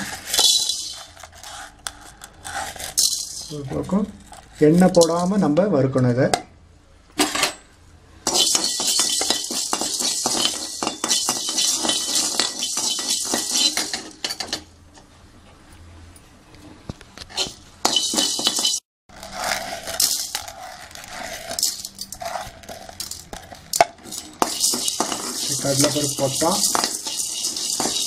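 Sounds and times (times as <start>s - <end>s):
peppercorns rattling in metal pan: 0.0s - 2.2s, 2.8s - 5.4s, 8.3s - 14.6s, 17.4s - 18.8s, 19.8s - 28.0s
metal spoon scraping pan: 8.3s - 14.6s, 17.3s - 28.0s.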